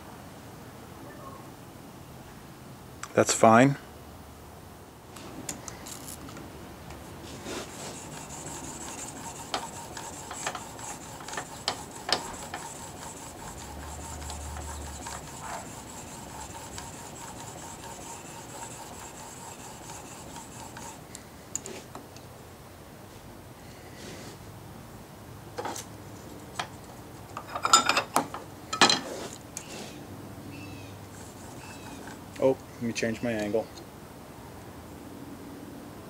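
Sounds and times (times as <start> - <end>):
steel rasping on sharpening plate: 7.4 - 21.0, 31.1 - 32.2.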